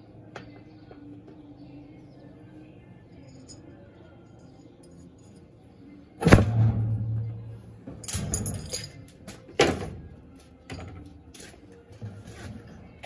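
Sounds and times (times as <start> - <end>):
machine parts clattering: 8.0 - 9.5.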